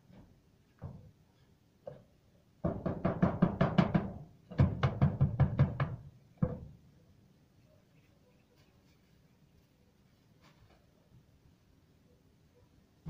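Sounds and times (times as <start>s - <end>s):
rapid knocking on hard surface: 2.6s - 6.0s.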